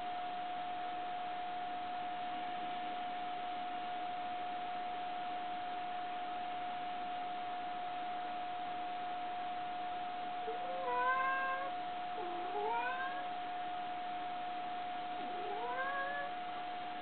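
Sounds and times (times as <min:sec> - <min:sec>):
thin steady hum: 0:00.0 - 0:17.0
cat meowing: 0:10.5 - 0:13.3, 0:15.2 - 0:16.4.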